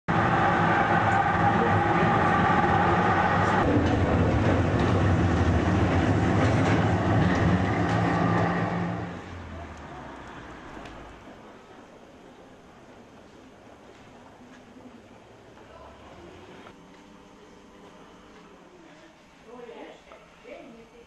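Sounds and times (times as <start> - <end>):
tram motor and wheels rumbling: 0.1 - 16.8
steady hum: 0.1 - 21.0
rail clicks: 0.4 - 9.1.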